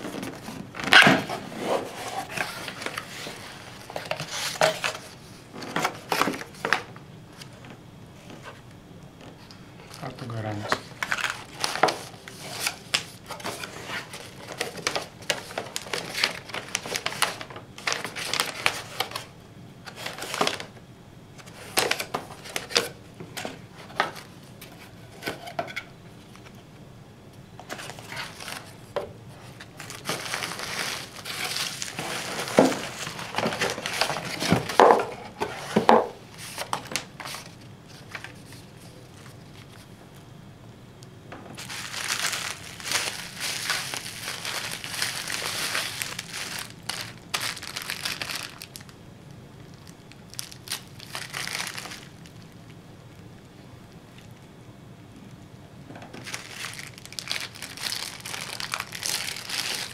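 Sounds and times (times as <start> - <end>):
paper and cardboard rustling: 0.0 - 6.9, 10.3 - 19.3, 19.9 - 20.7, 27.6 - 39.9, 41.6 - 48.9
bubble wrap crinkling: 10.4 - 19.3, 27.6 - 39.9, 41.6 - 49.0, 49.6 - 53.2, 56.2 - 59.9.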